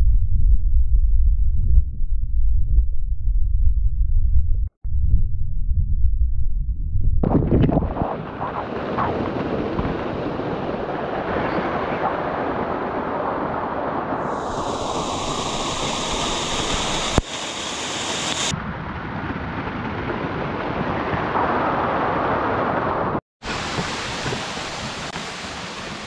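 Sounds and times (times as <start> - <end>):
waterfall pouring onto rock: 14.4 - 18.5.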